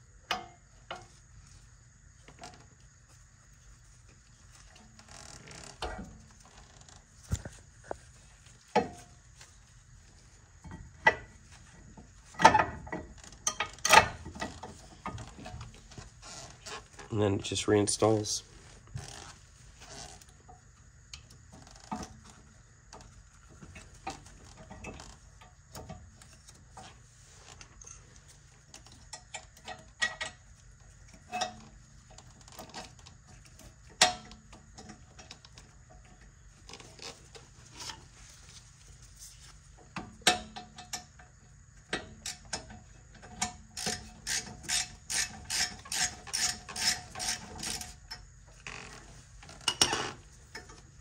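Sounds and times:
metal clinks and knocks: 0.3 - 1.1, 8.7 - 9.3, 10.6 - 17.1
ratchet wrench clicking: 43.8 - 47.9.

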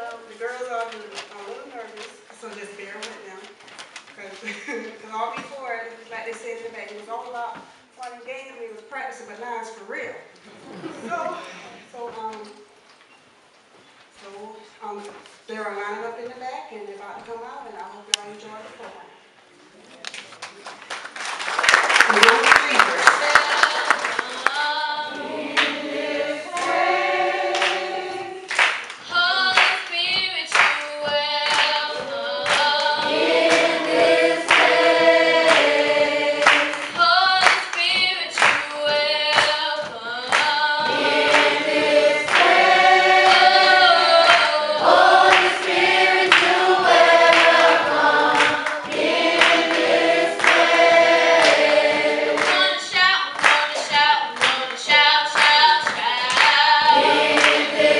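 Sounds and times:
hand claps: 20.1 - 57.9
applause: 20.4 - 24.6, 28.5 - 29.8, 48.4 - 49.8, 50.4 - 50.7
choir singing gospel in harmony: 23.0 - 29.7, 30.6 - 37.6, 38.8 - 53.3, 54.4 - 57.9.

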